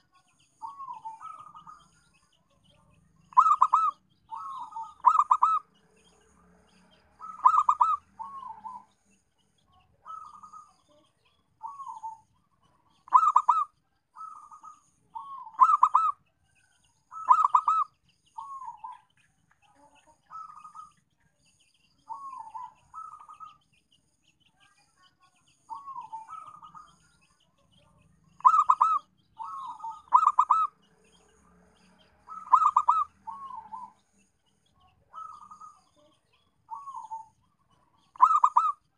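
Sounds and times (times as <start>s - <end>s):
dove cooing: 0.6s - 1.9s, 3.3s - 5.7s, 7.2s - 8.9s, 10.0s - 11.0s, 11.6s - 12.3s, 13.0s - 16.2s, 17.1s - 19.0s, 20.3s - 21.0s, 22.1s - 23.6s, 25.7s - 26.9s, 28.4s - 30.8s, 32.2s - 34.0s, 35.1s - 36.1s, 36.7s - 38.8s.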